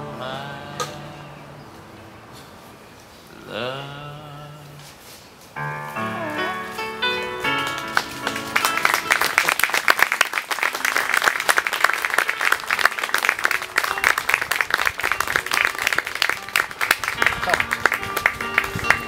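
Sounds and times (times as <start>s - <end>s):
song ending: 5.6s - 9.4s, 12.1s - 19.0s
crowd applauding: 7.4s - 19.0s.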